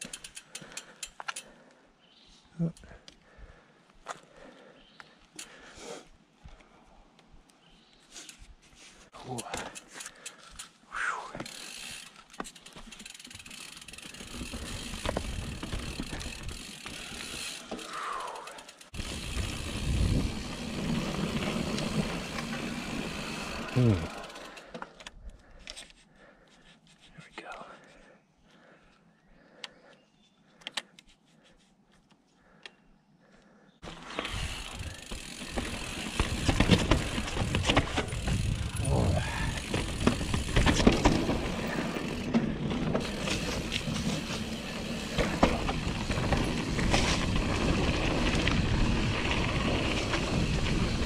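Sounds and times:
bike chain clicking and rattling: 0:00.0 - 0:01.6, 0:09.2 - 0:10.8, 0:11.4 - 0:27.1, 0:33.8 - 0:51.0
bike rumbling over rough ground: 0:11.4 - 0:24.7, 0:33.8 - 0:51.0
bike tyres rolling on dirt: 0:11.4 - 0:25.0, 0:33.8 - 0:51.0.

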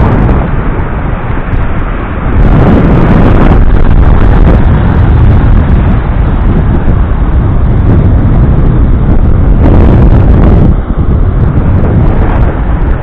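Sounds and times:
breaking surf: 0:00.0 - 0:13.0
wind buffeting microphone: 0:00.0 - 0:13.0.

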